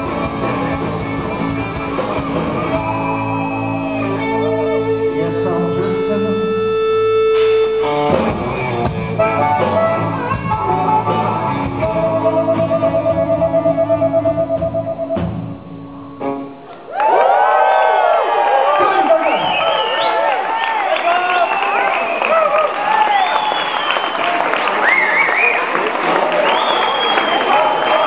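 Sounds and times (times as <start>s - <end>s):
blues-rock band playing: 0.0s - 16.8s
amplified harmonica: 9.1s - 16.6s.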